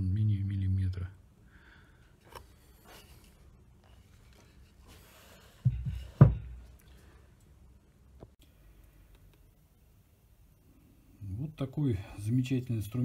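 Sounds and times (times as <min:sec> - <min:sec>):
hand plane thudding on workbench: 0:05.6 - 0:06.6.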